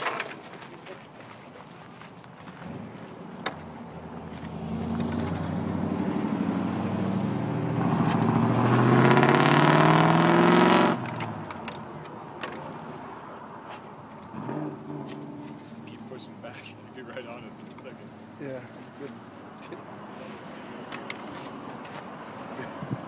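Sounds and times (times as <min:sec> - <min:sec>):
vehicle engine accelerating: 0:03.8 - 0:11.6, 0:14.2 - 0:16.2.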